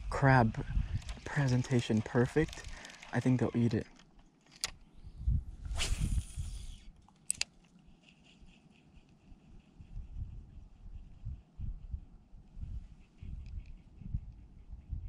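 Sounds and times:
reel ticking while cranked: 0:00.9 - 0:04.1
reel clicks: 0:00.9 - 0:04.8, 0:06.6 - 0:07.7
fishing line paying out: 0:01.0 - 0:04.0.

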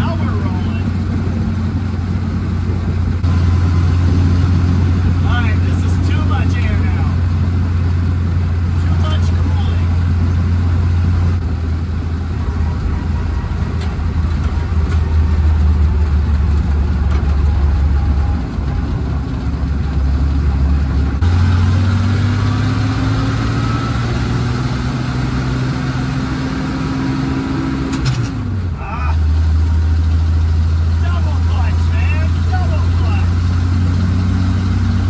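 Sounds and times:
truck engine pulling: 0:00.0 - 0:35.0.

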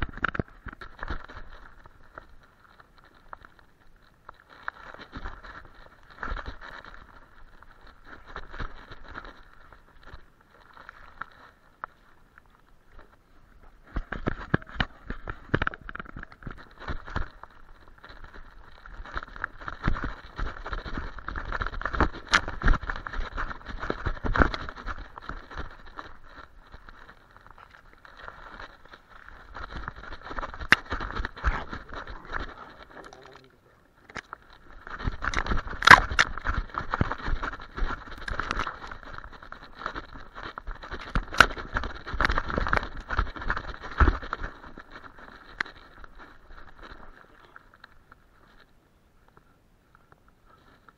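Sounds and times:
dog footfalls in dry brush: 0:00.0 - 0:33.4, 0:34.2 - 0:49.4
camera jolting on harness: 0:34.1 - 0:47.5.

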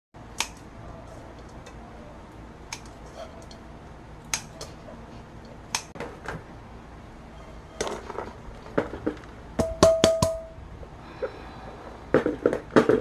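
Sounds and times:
scissors snipping: 0:00.4 - 0:00.6, 0:04.2 - 0:04.7.

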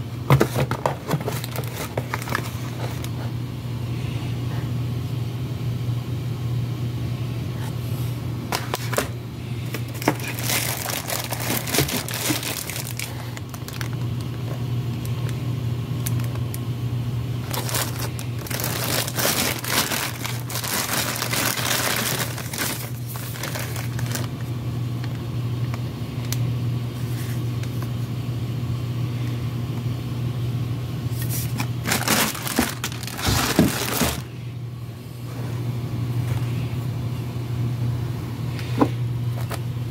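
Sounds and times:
steady low hum: 0:00.0 - 0:39.9
plastic bag crinkling: 0:01.0 - 0:03.1, 0:09.7 - 0:15.4, 0:16.0 - 0:16.7, 0:17.4 - 0:25.2, 0:31.2 - 0:34.3.

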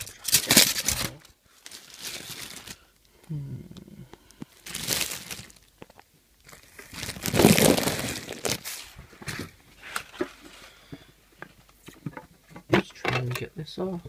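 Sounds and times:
plastic packaging crinkling: 0:00.0 - 0:03.0, 0:04.2 - 0:10.7.

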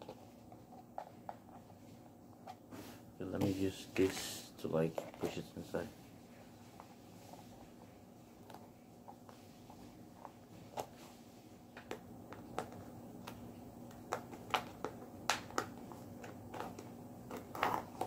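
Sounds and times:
faint steady hum: 0:00.0 - 0:18.0
plastic cup clicking and crackling: 0:11.8 - 0:18.0.

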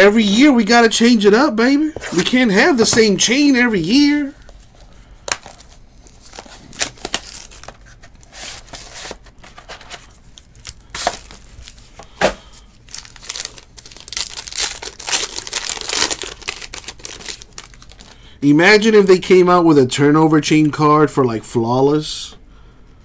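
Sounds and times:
foil wrapper tearing and crinkling: 0:05.3 - 0:08.8, 0:10.3 - 0:11.9, 0:12.8 - 0:18.2.

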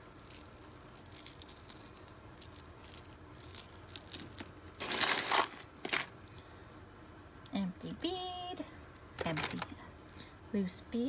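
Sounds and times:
bracelet beads clicking: 0:00.1 - 0:04.5.

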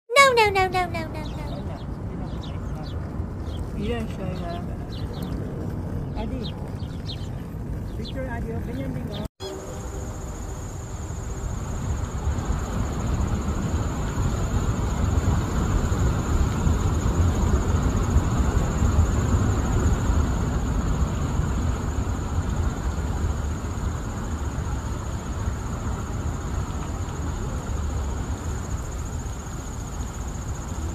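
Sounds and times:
high-pitched insect trill: 0:09.4 - 0:30.9.

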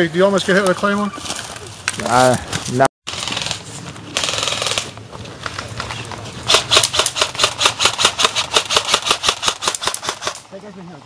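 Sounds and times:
airsoft rifle rapid shots: 0:04.2 - 0:04.9, 0:06.5 - 0:10.4.

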